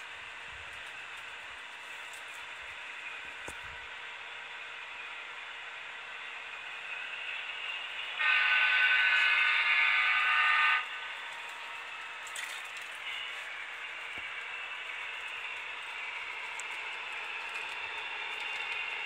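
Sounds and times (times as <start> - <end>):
model locomotive horn blast: 8.2 - 12.3, 12.9 - 15.3.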